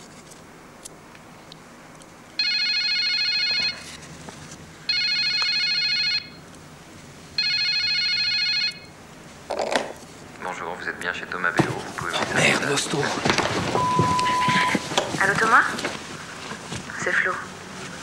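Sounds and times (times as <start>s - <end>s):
telephone electronic trilling ring: 2.4s - 3.8s, 4.9s - 6.4s, 7.4s - 8.9s.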